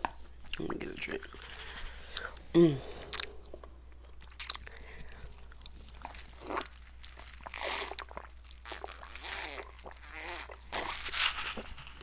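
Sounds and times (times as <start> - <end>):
wet mouth clicks: 3.1 - 3.6.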